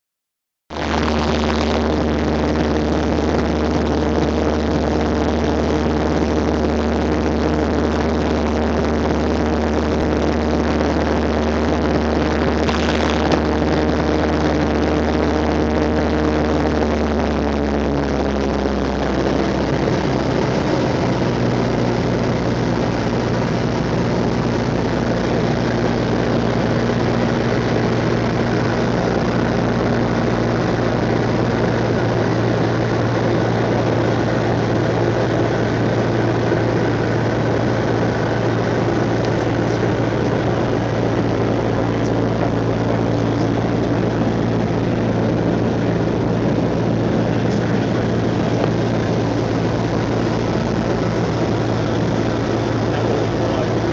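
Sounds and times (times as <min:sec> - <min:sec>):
propeller plane engine droning: 0:00.7 - 0:53.9.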